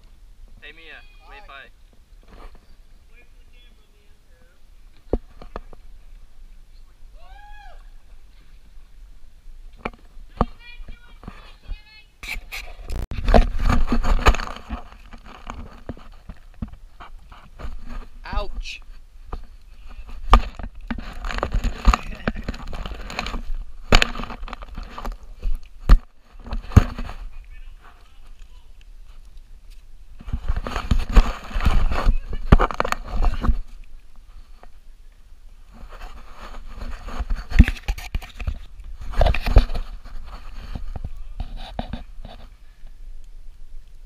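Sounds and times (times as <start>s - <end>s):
scraping against tree bark: 2.2s - 2.9s, 9.7s - 44.0s.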